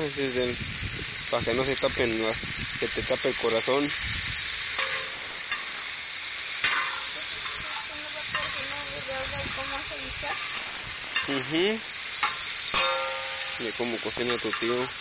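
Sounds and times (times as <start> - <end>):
vegetables sizzling in oil: 0.0 - 15.0
metal utensils scraping a pan: 4.6 - 15.0.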